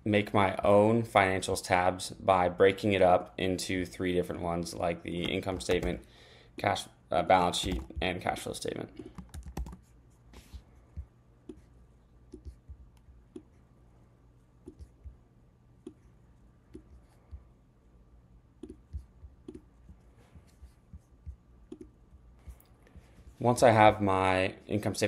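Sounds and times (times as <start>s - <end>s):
mouse and keyboard clicks: 18.6s - 19.7s, 21.7s - 22.7s.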